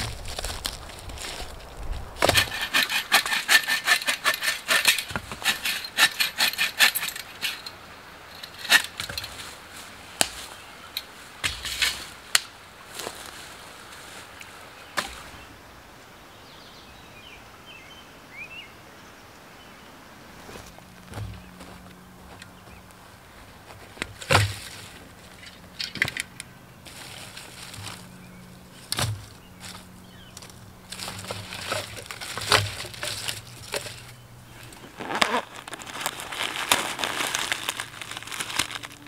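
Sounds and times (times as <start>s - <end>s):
dry sticks cracking and snapping: 0.0s - 6.1s, 10.2s - 12.6s, 28.8s - 39.0s.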